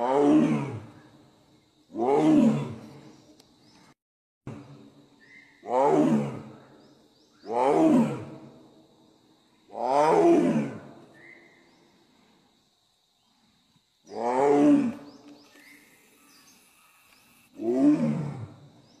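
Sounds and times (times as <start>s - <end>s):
tiger roaring: 0.0s - 0.9s, 1.9s - 3.0s, 5.6s - 6.6s, 7.5s - 8.5s, 9.7s - 10.9s, 14.1s - 15.1s, 17.5s - 18.6s.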